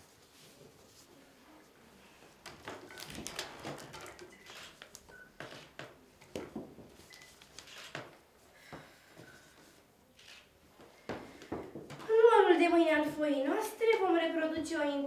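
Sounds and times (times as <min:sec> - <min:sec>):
newspaper rustling and crackling: 0:02.6 - 0:04.9.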